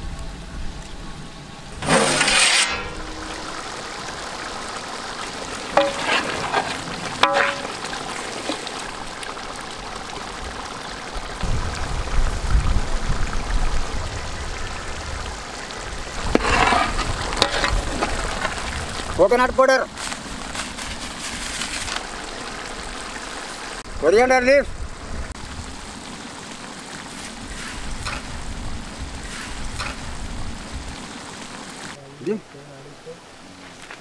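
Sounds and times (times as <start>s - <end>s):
curry bubbling: 1.8s - 23.9s, 25.0s - 32.0s.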